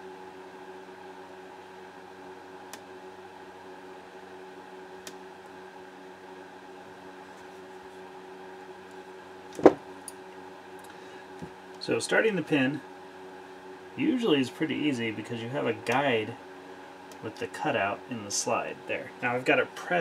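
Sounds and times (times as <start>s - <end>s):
steady background hum: 0.0s - 20.0s
knock on wooden workbench: 9.6s - 9.8s.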